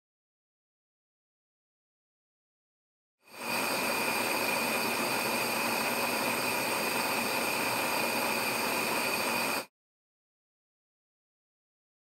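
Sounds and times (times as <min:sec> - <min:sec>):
gas pilot flame hissing: 0:03.3 - 0:09.7.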